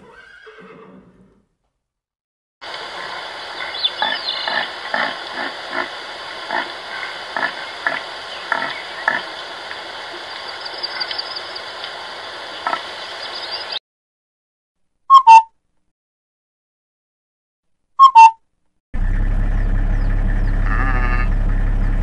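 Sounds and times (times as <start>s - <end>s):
steady hiss: 2.6s - 13.8s
deer making short low sounds: 20.6s - 21.4s.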